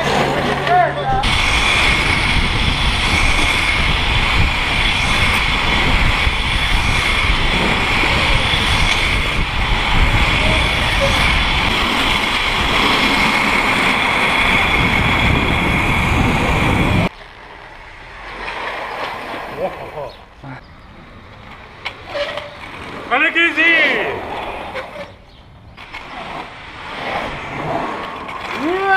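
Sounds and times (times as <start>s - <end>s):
high whine: 0.0s - 18.8s
wind rushing over microphone: 0.0s - 21.4s
quiet street sound: 0.0s - 28.9s
skate wheels rolling on asphalt: 0.0s - 28.9s.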